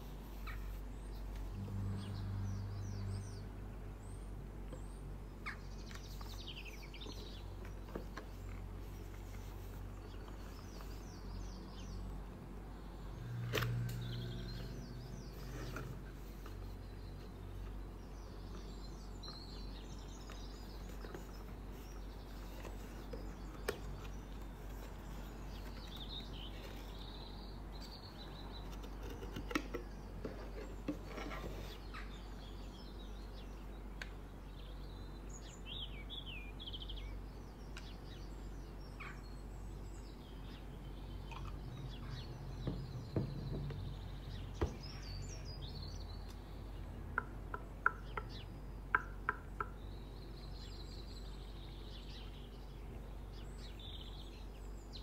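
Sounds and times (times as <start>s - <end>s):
low hum: 0.0s - 5.3s
birds chirping faintly: 0.0s - 55.0s.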